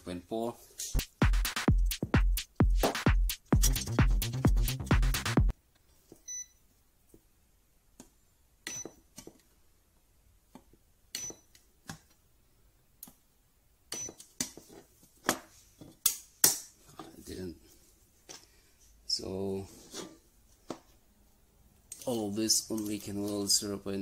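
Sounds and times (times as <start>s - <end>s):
background music with a beat: 1.0s - 5.5s.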